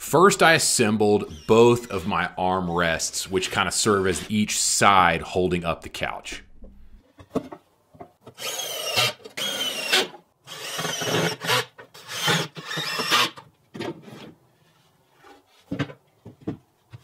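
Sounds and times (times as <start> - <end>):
cordless drill driving screws: 8.4 - 13.4.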